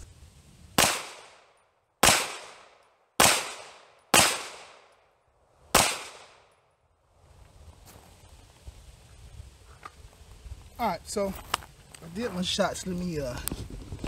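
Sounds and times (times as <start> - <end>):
pistol shots: 0.8 - 5.0, 5.7 - 6.5.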